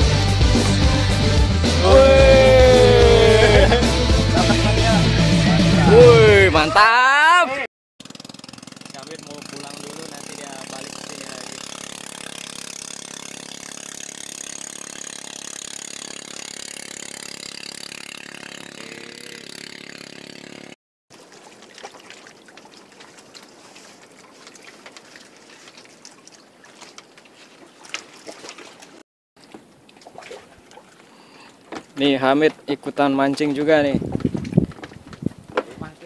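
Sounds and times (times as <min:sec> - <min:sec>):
motorboat engine running: 0:08.0 - 0:20.8.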